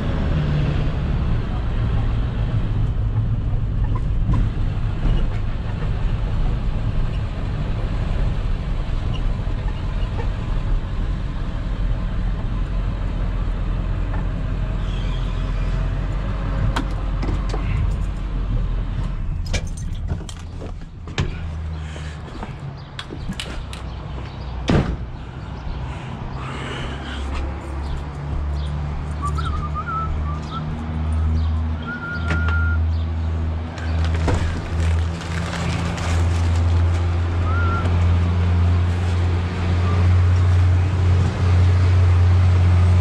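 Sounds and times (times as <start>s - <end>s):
car engine and road rumble: 0.0s - 43.0s
sharp clicks and knocks: 22.4s - 24.0s.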